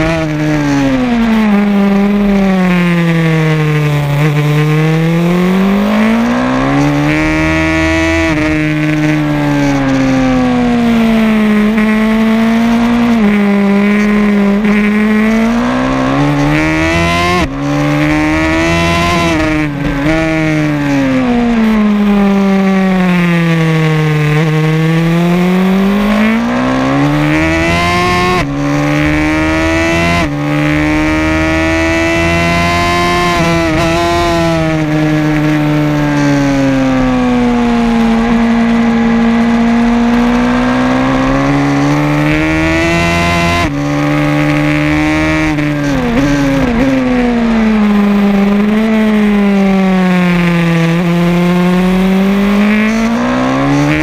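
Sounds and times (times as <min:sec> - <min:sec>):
racing motorcycle engine: 0:00.0 - 0:54.0
wind noise: 0:25.3 - 0:38.4.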